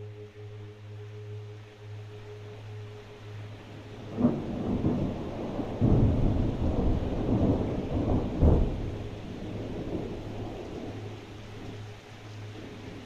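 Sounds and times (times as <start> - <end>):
thunder rumbling: 4.0 - 11.7.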